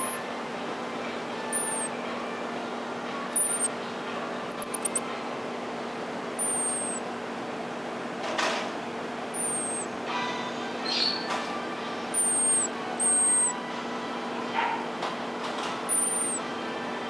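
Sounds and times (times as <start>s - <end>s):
marmoset whistling calls: 0.0s - 0.3s, 1.4s - 2.0s, 3.3s - 3.8s, 4.6s - 5.0s, 6.4s - 7.0s, 9.3s - 9.9s, 10.8s - 11.3s, 12.0s - 13.6s, 15.8s - 16.5s
low electrical hum: 0.0s - 17.0s.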